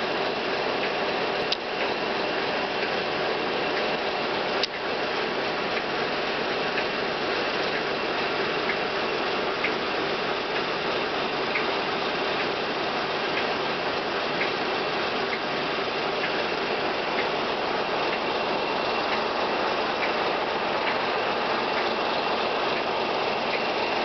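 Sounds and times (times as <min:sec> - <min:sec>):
faint ticking: 0:05.6 - 0:24.0.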